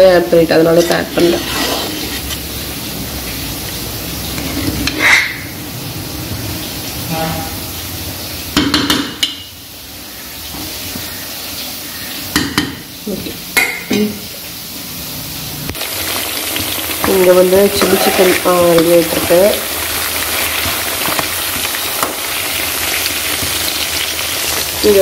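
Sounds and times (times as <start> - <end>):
food sizzling in frying pan: 0.0 - 25.0
spoon clinking and scraping pan: 17.0 - 19.6.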